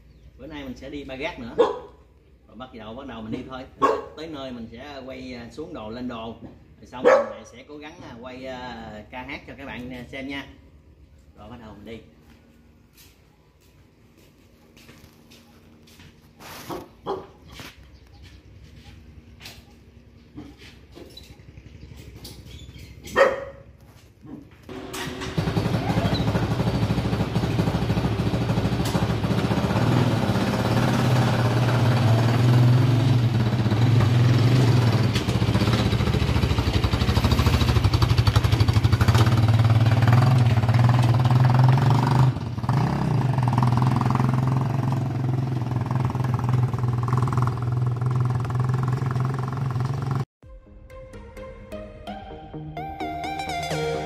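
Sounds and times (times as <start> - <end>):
motorcycle engine running: 17.9 - 23.4, 24.7 - 50.3.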